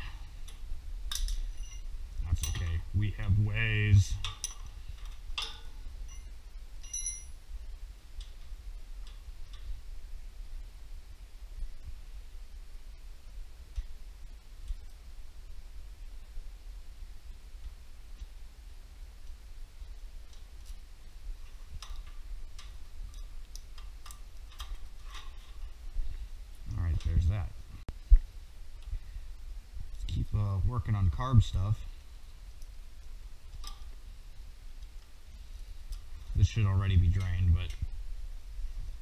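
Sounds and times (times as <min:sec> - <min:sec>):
steady low hum: 0:00.0 - 0:39.0
ringing metal clink: 0:01.1 - 0:02.8, 0:04.2 - 0:04.7, 0:05.4 - 0:07.4.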